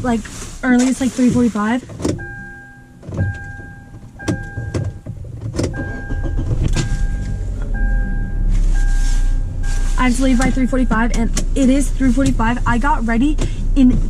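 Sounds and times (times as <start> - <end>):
low steady rumble: 0.0 - 14.0
handling noise: 0.1 - 7.7
car warning chime: 2.2 - 5.1, 5.7 - 13.3.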